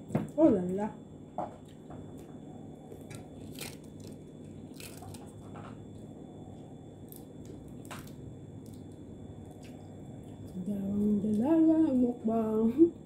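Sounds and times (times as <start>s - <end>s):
steady low hum: 0.0s - 13.0s
crunchy chewing: 1.6s - 11.4s.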